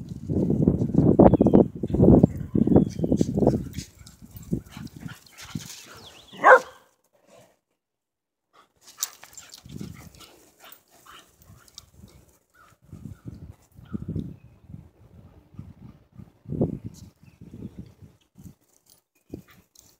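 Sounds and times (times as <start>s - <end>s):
dog paws running on gravel: 2.9s - 6.8s
dog barking: 6.3s - 6.9s.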